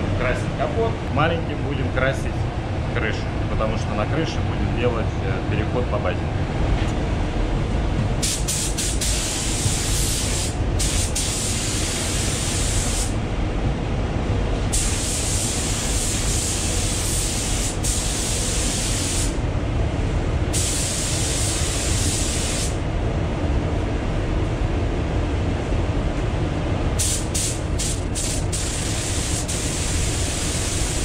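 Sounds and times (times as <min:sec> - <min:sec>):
ventilation rumble: 0:00.0 - 0:31.0
spray gun hissing: 0:08.2 - 0:13.2, 0:14.7 - 0:19.4, 0:20.6 - 0:22.8, 0:27.0 - 0:31.0.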